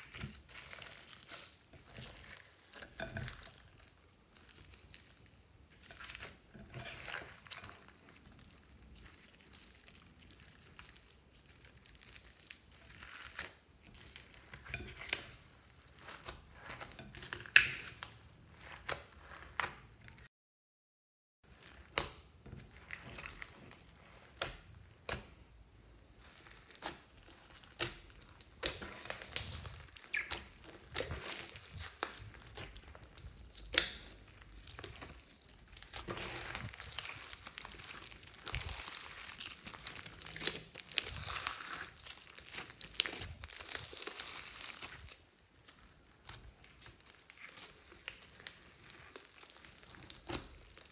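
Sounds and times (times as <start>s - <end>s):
foam beads crunching: 0.0s - 3.6s, 26.2s - 45.2s
slime squelching and popping: 0.0s - 20.3s, 21.5s - 50.9s.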